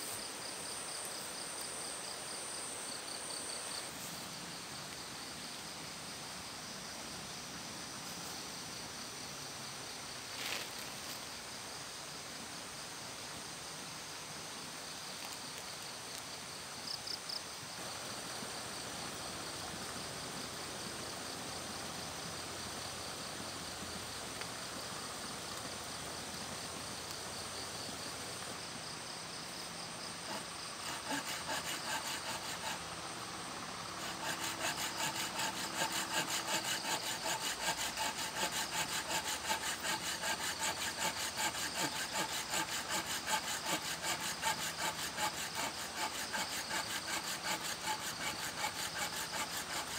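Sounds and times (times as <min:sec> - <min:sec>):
insects chirring: 0:00.0 - 0:13.0, 0:14.6 - 0:49.9
hand saw cutting wood: 0:30.2 - 0:32.9, 0:34.0 - 0:49.9.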